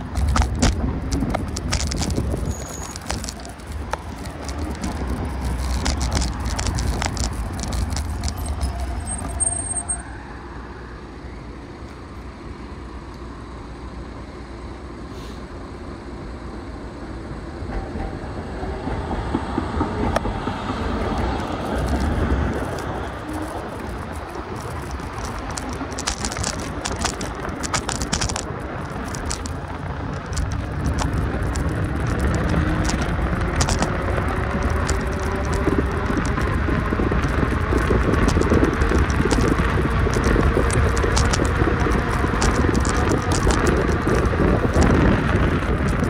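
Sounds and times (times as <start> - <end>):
rattling and clicking: 0.0 - 10.0, 19.3 - 46.0
vehicle rumble: 0.0 - 46.0.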